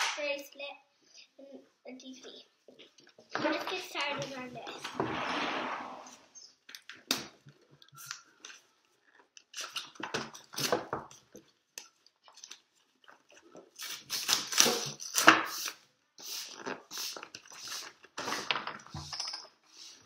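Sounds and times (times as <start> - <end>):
wrapping crinkling: 7.8 - 15.8.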